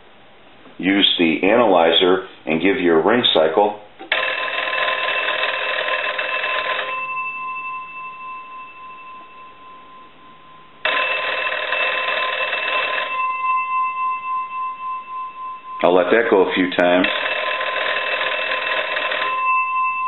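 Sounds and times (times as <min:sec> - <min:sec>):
telephone bell gongs ringing: 0:04.1 - 0:20.0.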